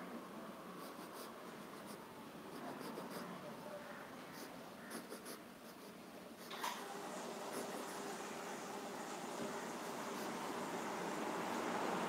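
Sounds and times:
pen scratching on paper: 0.8s - 3.4s, 4.3s - 6.6s.

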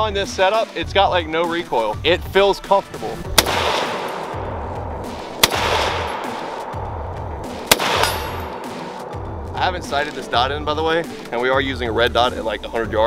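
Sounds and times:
rifle shots with echo: 3.3s - 9.4s.

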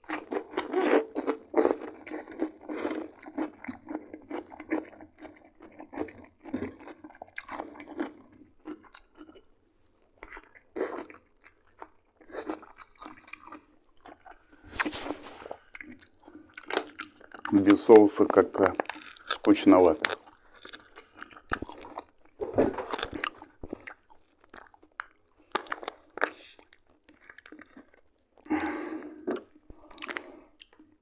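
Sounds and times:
wet mouth sounds: 0.0s - 6.2s, 10.2s - 17.9s, 22.8s - 31.0s
chewing and crunching: 0.0s - 31.0s.

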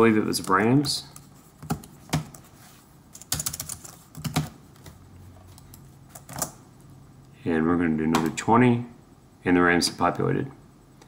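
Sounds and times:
keyboard typing: 3.1s - 6.6s.

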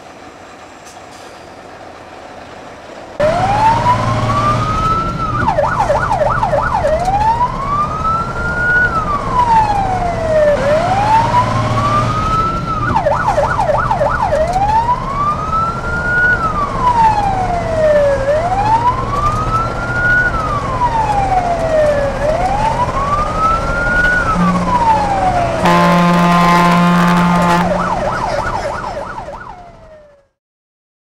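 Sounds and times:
fire truck siren: 3.2s - 30.4s
horn blast: 10.5s - 11.8s, 24.3s - 28.7s.

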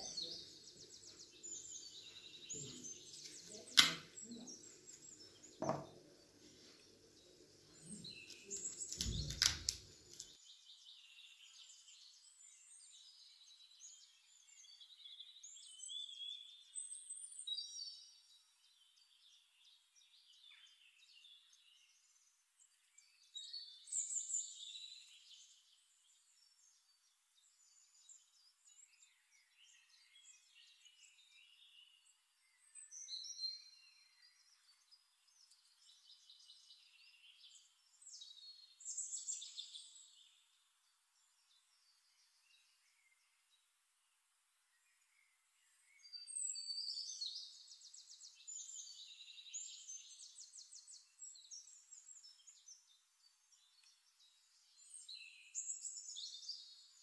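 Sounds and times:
knife knock: 5.6s - 6.0s.

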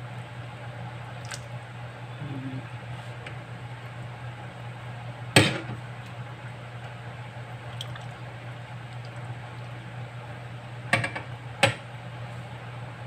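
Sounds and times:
wet squelching: 7.7s - 9.8s.

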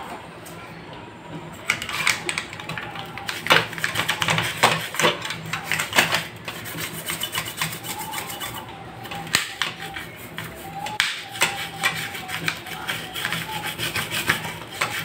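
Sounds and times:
brush scrubbing circuit board: 3.2s - 15.0s.

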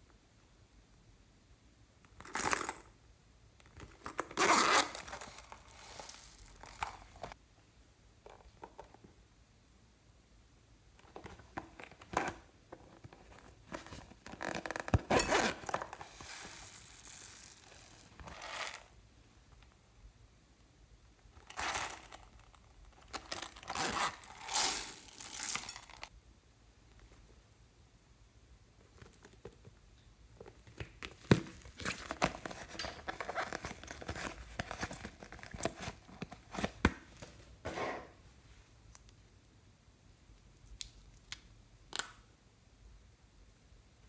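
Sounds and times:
zippers being pulled open: 4.3s - 6.9s, 14.3s - 16.6s, 23.6s - 26.0s.

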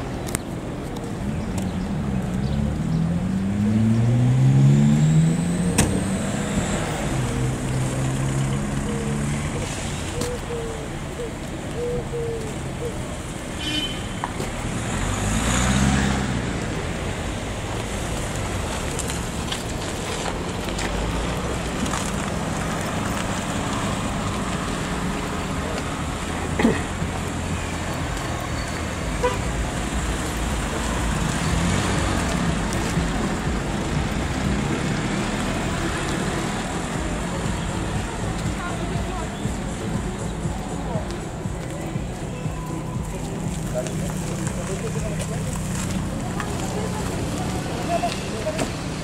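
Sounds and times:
road traffic noise: 0.0s - 49.0s
vehicle passing close: 1.4s - 10.5s, 14.5s - 41.0s.

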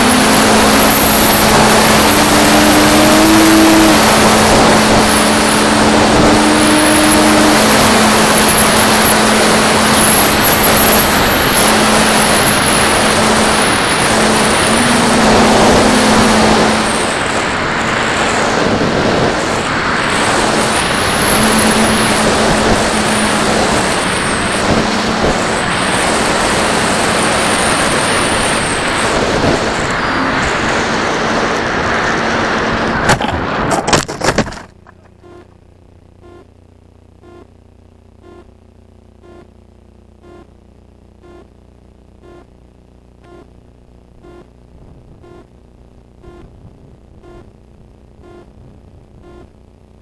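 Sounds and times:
electric motor and propeller whining: 0.0s - 33.7s
wind rush over airframe: 0.0s - 33.9s.

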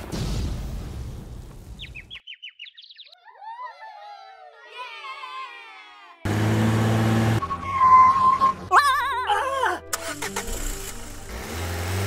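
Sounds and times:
warbling bird-like tweets: 1.8s - 3.2s
loud motor-like buzzing effect: 10.4s - 12.0s.

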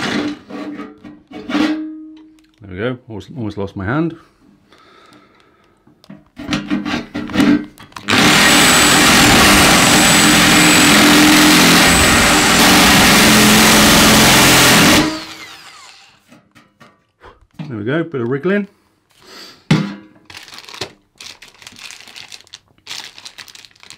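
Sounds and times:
electric drill grinding metal: 8.0s - 16.3s.

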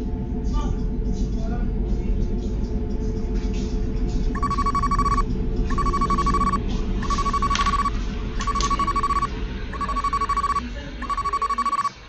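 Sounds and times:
low hum: 2.3s - 11.9s
electronic trilling ring tone: 4.4s - 12.0s.

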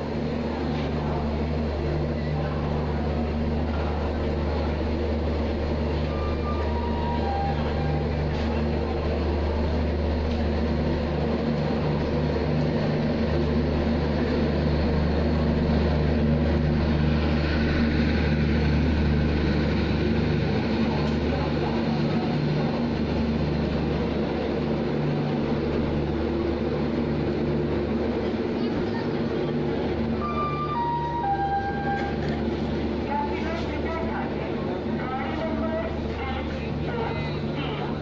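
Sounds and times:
train rumbling: 0.0s - 38.0s.

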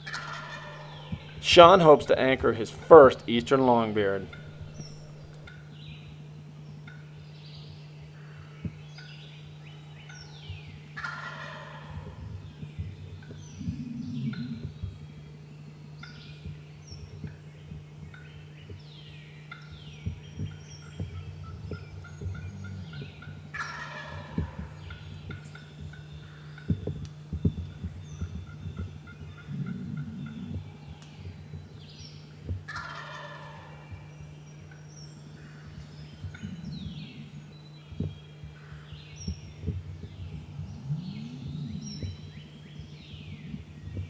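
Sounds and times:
turkey gobbling: 0.0s - 5.6s, 11.0s - 12.2s, 20.5s - 26.8s, 28.4s - 30.8s, 32.7s - 33.9s.

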